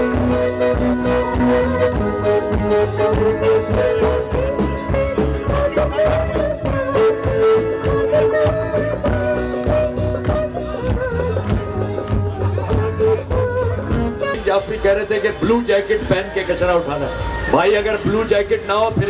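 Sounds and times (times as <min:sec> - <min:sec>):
person singing long notes: 0:00.0 - 0:14.4
live band music: 0:00.0 - 0:18.2.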